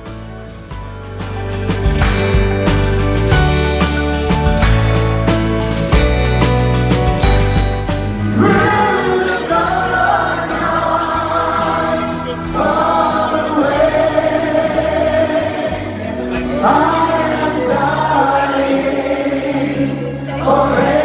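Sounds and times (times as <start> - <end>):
backing music: 0.0 - 21.0
vocal group singing in harmony: 8.1 - 21.0.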